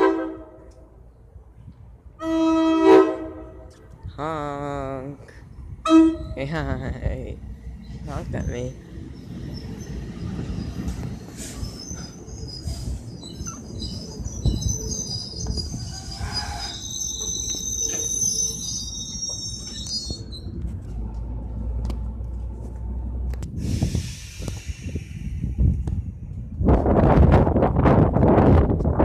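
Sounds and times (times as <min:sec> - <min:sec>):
train wheels rumbling on rails: 0:05.3 - 0:29.0
metallic wheel squeal: 0:09.2 - 0:20.6.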